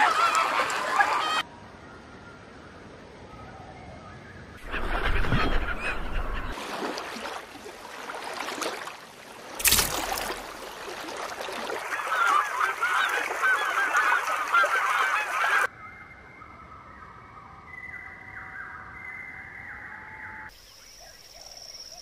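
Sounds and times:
flock of birds calling: 0:11.8 - 0:15.7.

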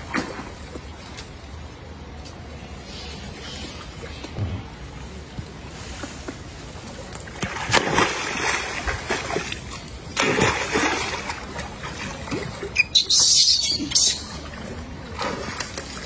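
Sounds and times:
monkeys splashing in water: 0:07.2 - 0:16.0.

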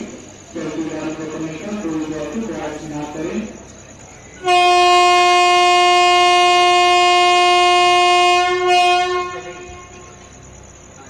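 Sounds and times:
locomotive air horn blast: 0:04.4 - 0:10.2.

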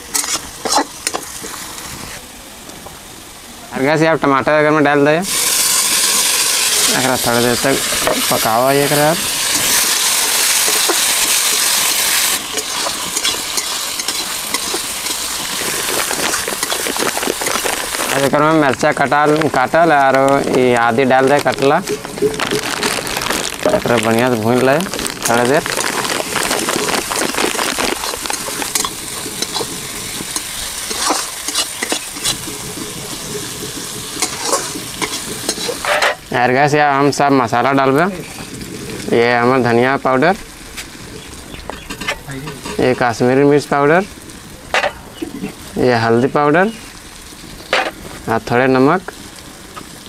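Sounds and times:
metal spatula scraping pan: 0:00.0 - 0:01.3, 0:07.9 - 0:17.8, 0:28.3 - 0:32.5, 0:34.2 - 0:36.2, 0:47.7 - 0:48.0
vegetables sizzling in hot oil: 0:00.0 - 0:50.0.

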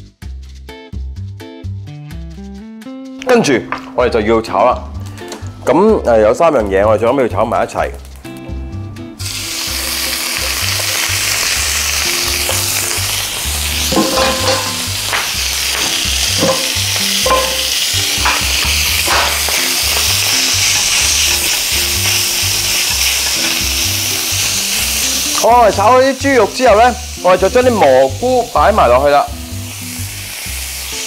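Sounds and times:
meat sizzling in frying pan: 0:09.2 - 0:31.0.

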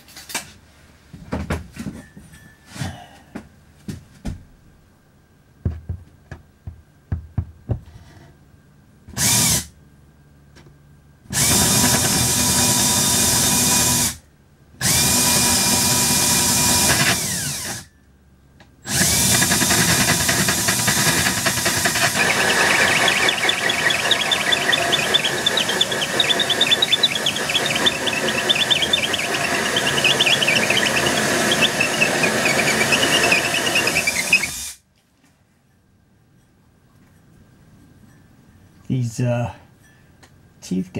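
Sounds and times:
cordless drill with hole saw cutting: 0:11.4 - 0:14.2, 0:14.8 - 0:17.9, 0:18.9 - 0:34.8.

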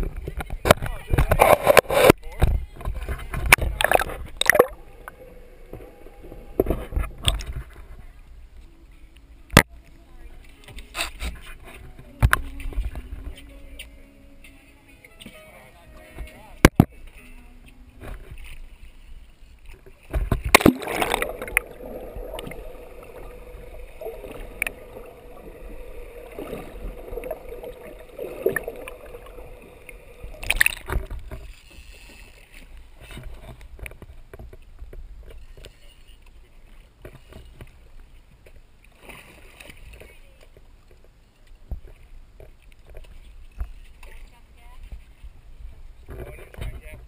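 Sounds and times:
water splashing against boat hull: 0:00.0 - 0:08.1, 0:19.6 - 0:35.8
steady hum: 0:03.6 - 0:08.0, 0:20.4 - 0:31.5.

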